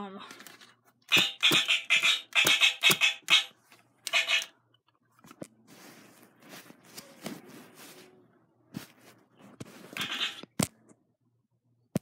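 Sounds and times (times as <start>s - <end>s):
phone rustling against bedding: 5.2s - 10.4s.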